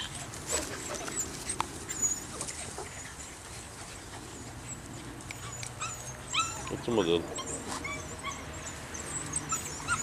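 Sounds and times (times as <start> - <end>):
puppies squeaking and chirping: 0.0 - 10.0.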